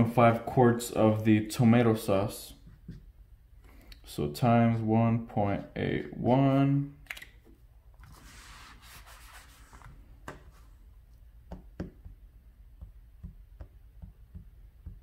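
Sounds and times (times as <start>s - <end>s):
hand rubbing on paper: 8.1s - 10.8s.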